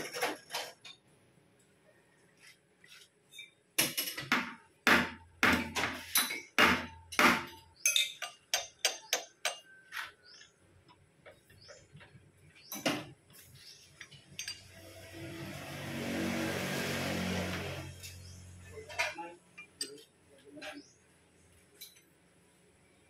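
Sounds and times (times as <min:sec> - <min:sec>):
metal knocks and clinks: 0:14.3 - 0:14.7.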